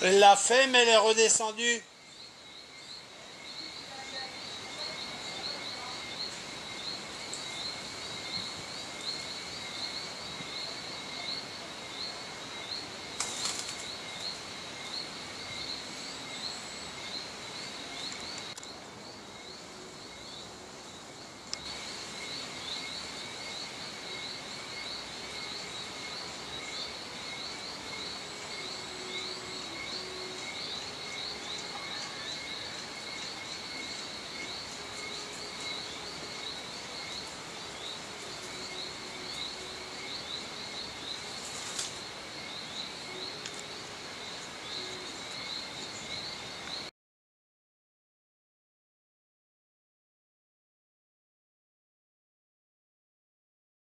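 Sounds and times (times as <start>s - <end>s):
insects chirring: 0.0s - 46.9s
hen wings flapping: 13.2s - 13.9s, 41.4s - 42.0s.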